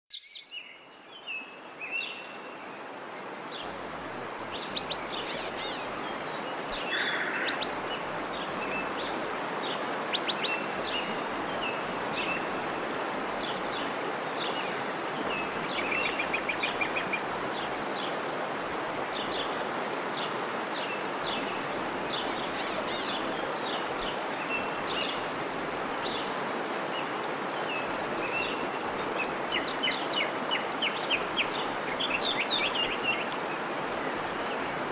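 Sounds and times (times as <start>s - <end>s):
songbirds chirping and trilling: 0.1s - 34.9s
waterfall rushing: 1.7s - 34.9s.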